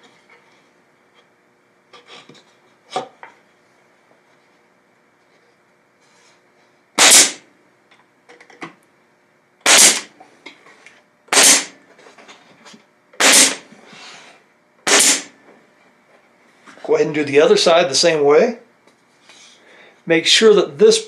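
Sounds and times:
nail gun firing into wood: 0:07.0 - 0:07.4, 0:09.6 - 0:10.1, 0:11.3 - 0:11.8, 0:13.2 - 0:13.7, 0:14.8 - 0:15.4.

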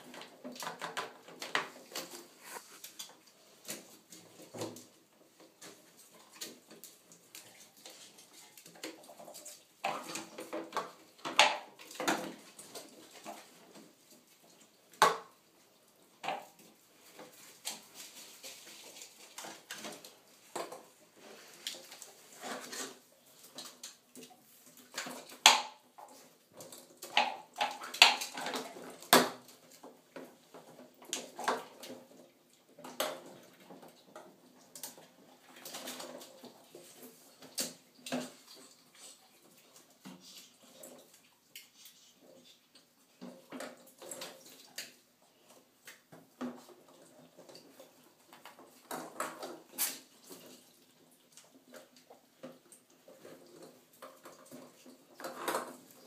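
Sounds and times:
plastic balls and cups clattering: 0:00.0 - 0:07.1, 0:08.0 - 0:14.0, 0:24.8 - 0:38.7, 0:46.1 - 0:50.6, 0:51.6 - 0:56.0.

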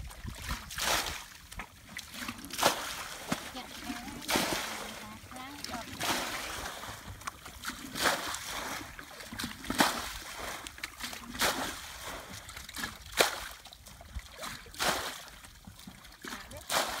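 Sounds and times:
bucket splashing muddy water: 0:00.0 - 0:17.0.

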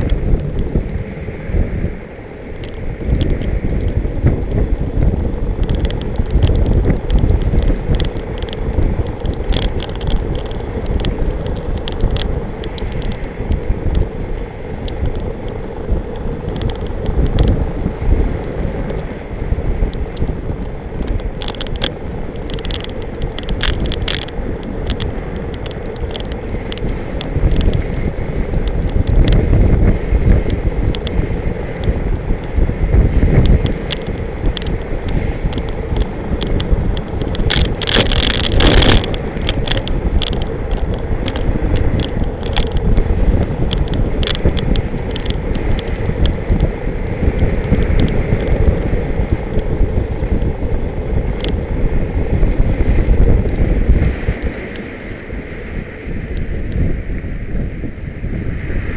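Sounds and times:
wheels rumbling on sand: 0:00.0 - 0:58.9
wind buffeting microphone: 0:00.0 - 0:58.9
clicks and rattles: 0:05.6 - 0:13.2, 0:21.0 - 0:27.9, 0:33.4 - 0:46.7.

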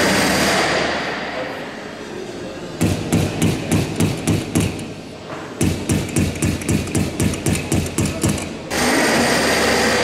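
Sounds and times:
hand hammer striking: 0:02.8 - 0:04.9, 0:05.6 - 0:08.6.

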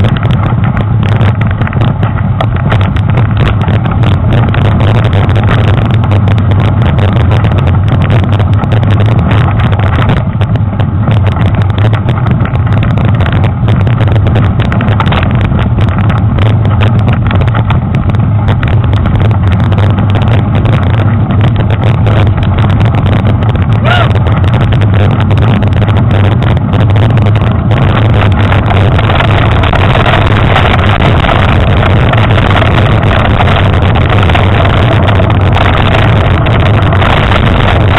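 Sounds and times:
wind rumble on camera: 0:00.0 - 0:37.9.

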